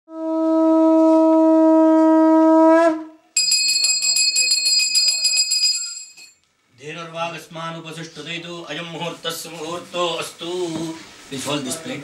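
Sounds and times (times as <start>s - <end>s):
conch shell blown: 0.1s - 3.2s
hand bell ringing rapidly: 3.4s - 6.4s.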